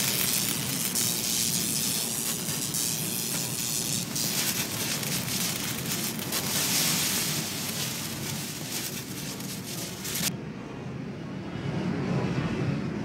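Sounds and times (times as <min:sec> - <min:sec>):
shredded hay rushing hiss: 0:00.0 - 0:10.3
low machine drone: 0:00.0 - 0:12.6.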